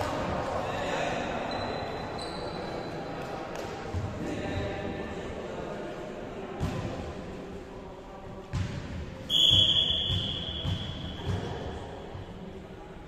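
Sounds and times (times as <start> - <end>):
volleyball bouncing on floor: 8.5 - 11.6
referee's whistle blast: 9.3 - 11.1.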